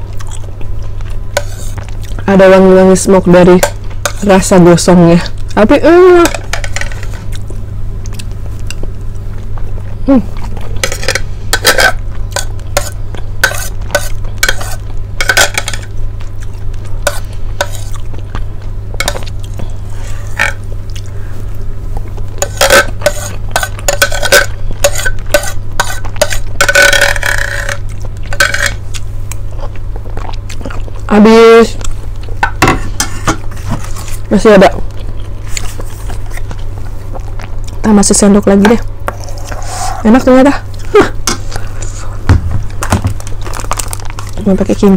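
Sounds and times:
steady low hum: 0.0 - 44.9
mouth sounds of eating: 7.2 - 10.8
spoon clinking and scraping plate: 10.8 - 15.8, 22.4 - 28.8.

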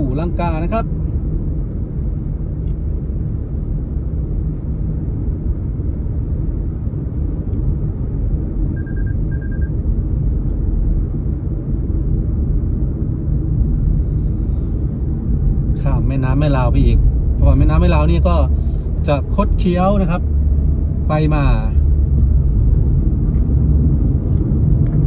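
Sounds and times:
car cabin road rumble: 0.0 - 25.0
quick high beeps: 8.8 - 9.7.

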